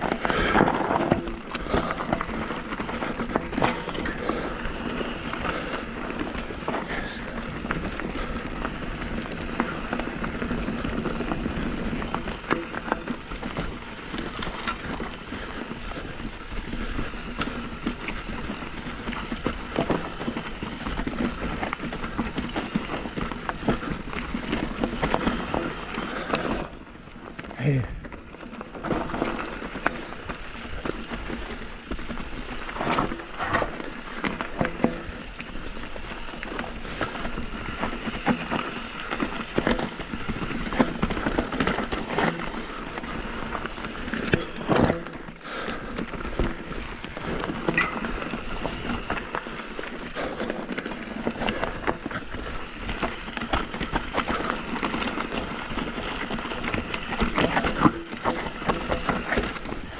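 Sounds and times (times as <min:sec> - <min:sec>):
bike rattling over bumps: 0:00.0 - 0:59.9
bike tyres crunching on dirt: 0:00.0 - 0:59.9.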